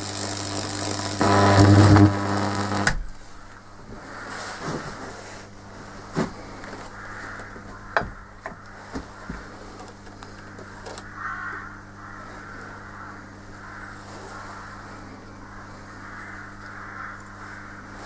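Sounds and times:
electric current fizzing and crackling: 0.0s - 3.5s
transformer humming: 0.0s - 3.6s.

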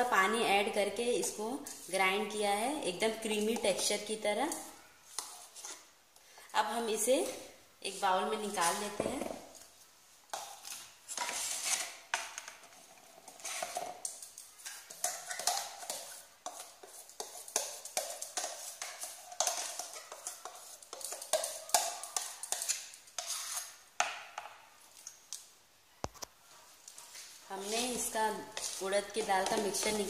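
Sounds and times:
spoon scraping a steel jar: 10.3s - 23.8s, 27.1s - 30.0s.

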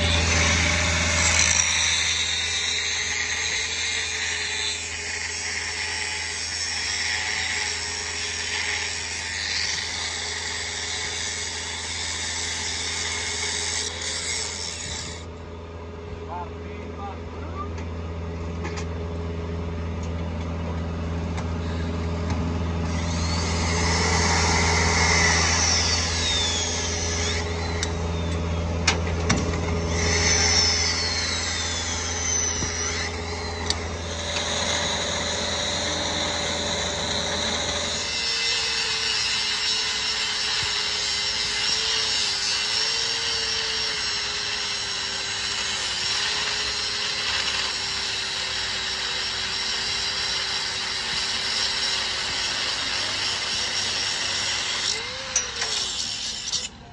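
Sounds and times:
low hum: 0.0s - 5.8s, 14.5s - 38.7s
angle grinder grinding steel: 0.0s - 15.3s, 21.6s - 56.9s
electric wrench running: 0.0s - 15.4s, 21.1s - 56.8s.

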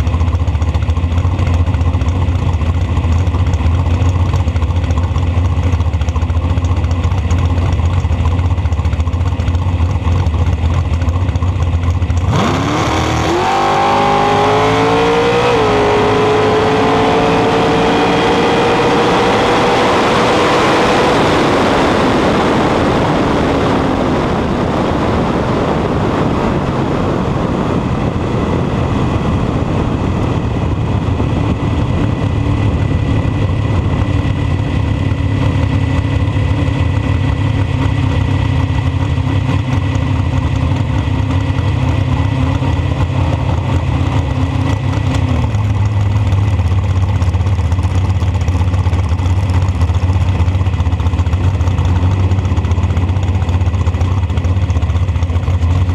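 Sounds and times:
dragster engine running: 0.0s - 55.9s
wind rush: 12.4s - 39.6s.

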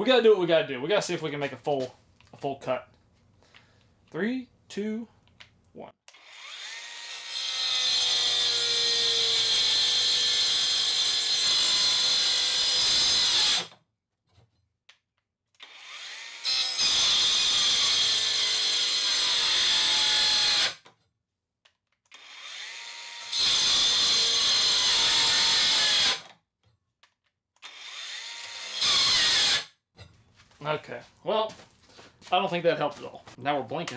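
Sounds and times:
angle grinder cutting wood: 6.1s - 13.7s, 15.6s - 20.8s, 22.1s - 26.3s, 27.6s - 29.7s.

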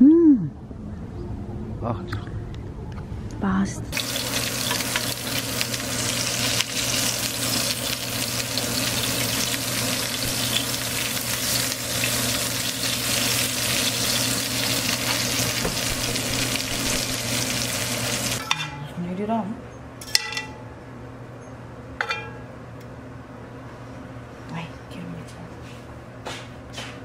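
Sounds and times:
meat sizzling in a pan: 3.9s - 18.4s
low steady hum: 15.8s - 26.1s.

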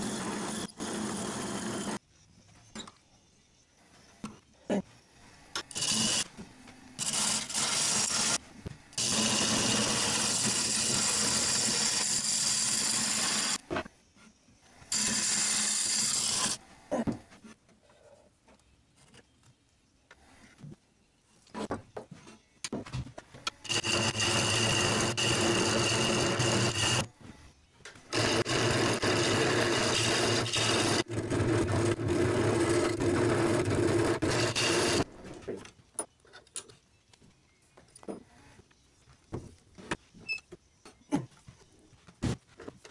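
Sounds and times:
wood lathe cutting: 23.7s - 27.1s, 28.1s - 35.1s.

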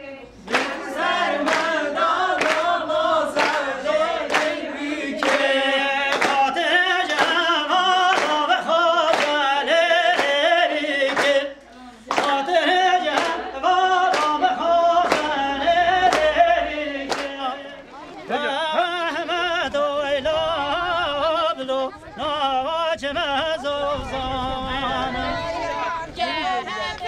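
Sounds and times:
voices singing together: 0.0s - 27.0s
hand clapping in time: 0.5s - 0.8s, 1.4s - 1.8s, 2.4s - 9.4s, 10.0s - 15.4s, 16.0s - 16.5s, 17.1s - 17.5s.

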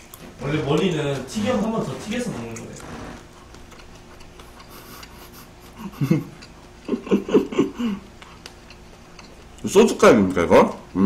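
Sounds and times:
man chuckling with mouth full: 4.6s - 8.1s.

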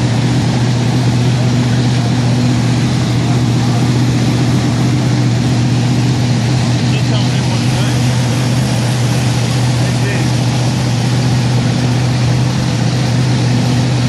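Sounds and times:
dragster engine idling: 0.0s - 14.0s.

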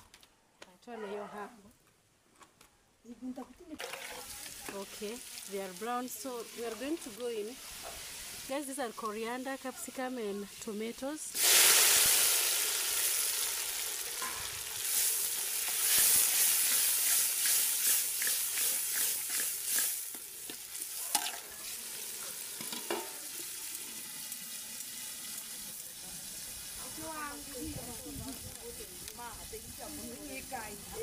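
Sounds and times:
vegetables sizzling in hot oil: 3.8s - 9.6s, 10.6s - 31.0s
spoon stirring and scraping pan: 15.6s - 21.4s.

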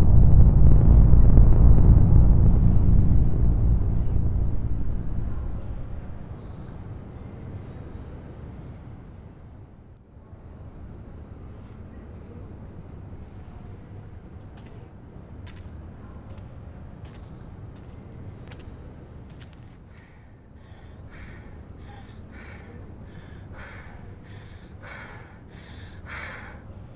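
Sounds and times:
low rumble: 0.0s - 7.2s
cricket chirping: 0.0s - 26.9s.

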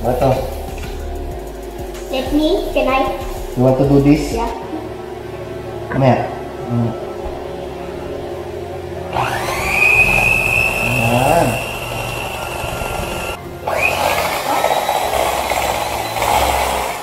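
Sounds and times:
electric hand mixer whining: 9.1s - 17.0s.

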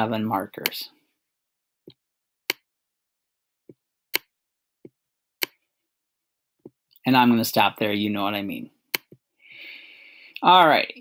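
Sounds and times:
stylus clicking on tablet: 1.8s - 2.7s, 3.7s - 5.7s, 8.9s - 9.3s.

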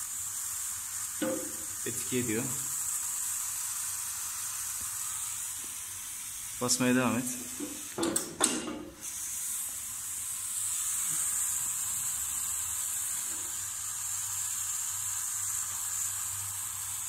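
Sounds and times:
water hissing from pipe leak: 0.0s - 3.9s
brief knock: 1.2s - 1.6s.

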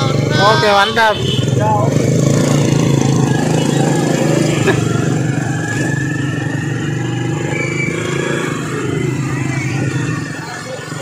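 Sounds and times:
wind and road noise: 0.0s - 11.0s.

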